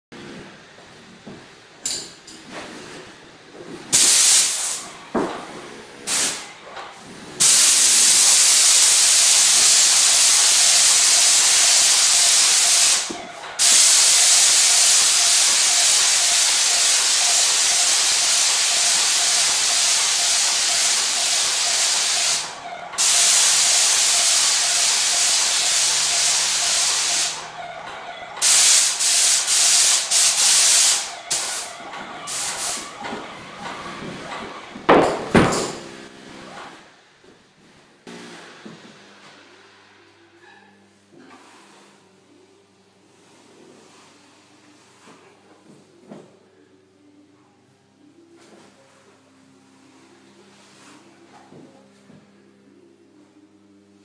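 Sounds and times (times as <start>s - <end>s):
spray gun hissing: 3.9s - 4.8s, 6.1s - 6.4s, 7.4s - 27.4s, 28.4s - 31.7s, 32.3s - 32.9s.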